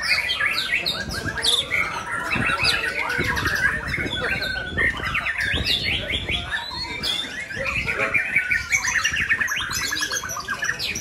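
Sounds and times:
songbirds singing: 0.0s - 11.0s.

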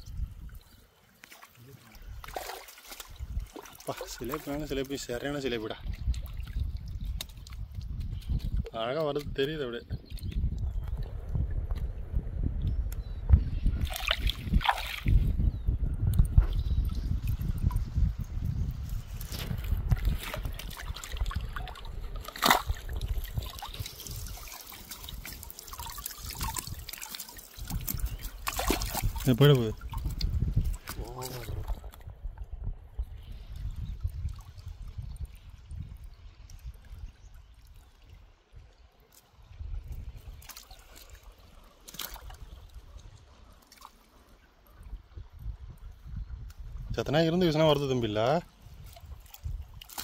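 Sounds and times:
water trickling and sloshing: 0.0s - 50.0s
small splashes: 0.5s - 9.2s, 13.8s - 15.3s, 19.4s - 32.0s, 37.5s - 44.5s, 48.7s - 50.0s.

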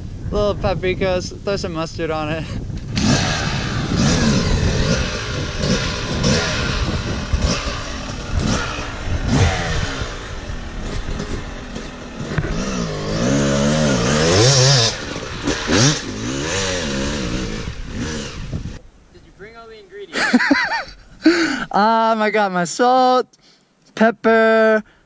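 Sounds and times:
dirt bike engine revving: 2.9s - 18.8s.

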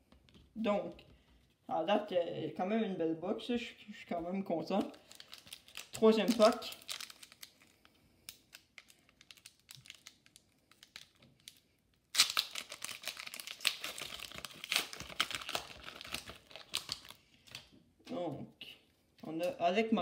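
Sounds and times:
foil wrapper crinkling: 4.8s - 17.7s.

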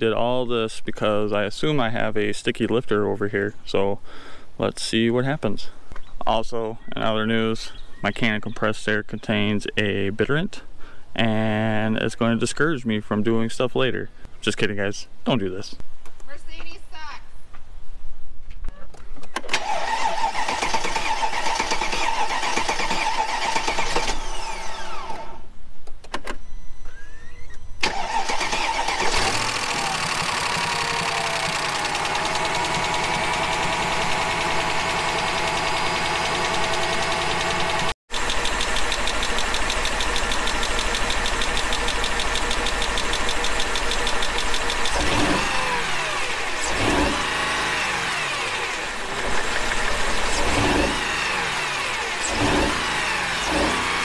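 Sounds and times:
car engine starting and running: 19.4s - 25.4s, 27.8s - 54.0s.

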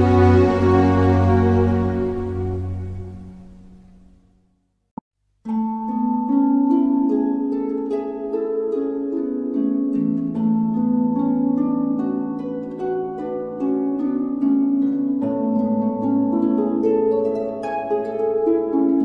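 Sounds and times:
calm instrumental harp-like music: 0.0s - 4.1s, 5.4s - 19.0s.

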